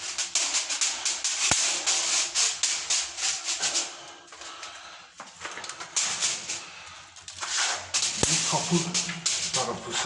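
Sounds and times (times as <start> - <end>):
racket scraping along a door: 7.4 - 8.9.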